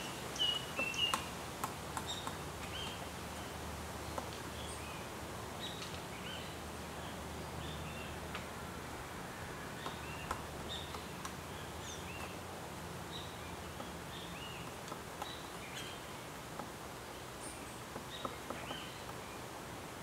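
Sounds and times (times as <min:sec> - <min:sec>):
forest ambience hiss: 0:00.0 - 0:20.0
woodpecker tapping on wood: 0:00.8 - 0:03.1, 0:09.8 - 0:11.5, 0:13.6 - 0:15.8, 0:16.5 - 0:16.8, 0:17.9 - 0:19.3.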